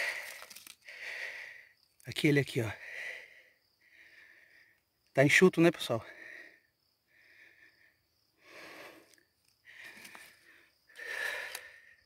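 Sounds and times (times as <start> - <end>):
man breathing hard: 0.0 - 1.8, 2.6 - 4.9, 6.0 - 12.0.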